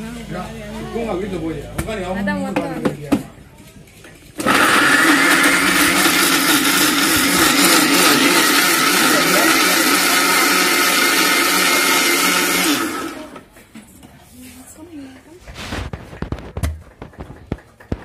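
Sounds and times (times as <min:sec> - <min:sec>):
mixer grinder motor whining: 0:04.4 - 0:13.5.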